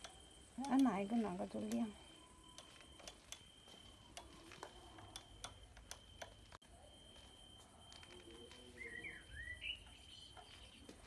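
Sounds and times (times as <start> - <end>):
push-buttons clicking: 0.0 - 6.6
faint high-pitched whine: 0.0 - 11.0.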